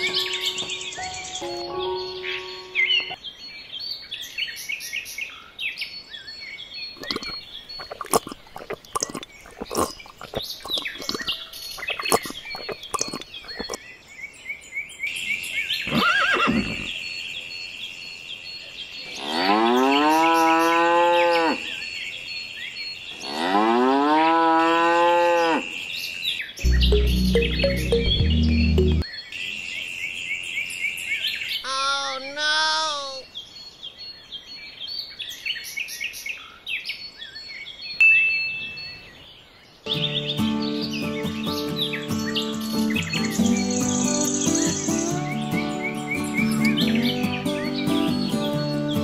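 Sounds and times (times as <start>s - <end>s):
deep low sound: 26.6s - 29.0s.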